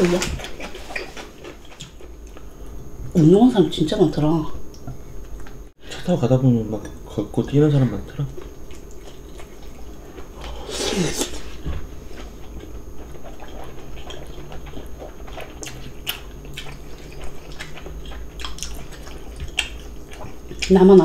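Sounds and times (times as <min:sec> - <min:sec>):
chewing: 0:00.0 - 0:02.5, 0:08.3 - 0:20.9.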